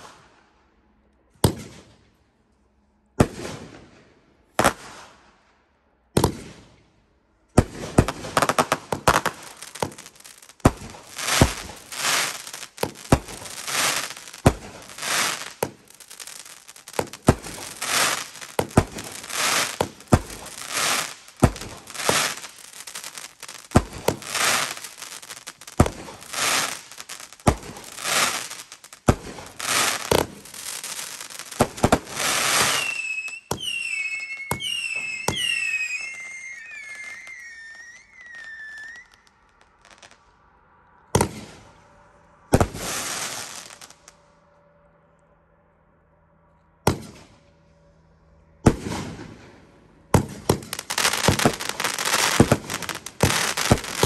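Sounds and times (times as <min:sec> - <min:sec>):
fireworks shots: 0:00.0 - 0:00.4, 0:01.4 - 0:02.2, 0:03.2 - 0:05.5, 0:06.1 - 0:07.0, 0:07.6 - 0:40.2, 0:41.1 - 0:44.1, 0:46.8 - 0:47.5, 0:48.6 - 0:54.0
crackling firework bursts: 0:00.0 - 0:00.6, 0:07.6 - 0:44.3, 0:48.6 - 0:54.0
whistling firework tails: 0:07.7 - 0:44.4, 0:48.7 - 0:54.0.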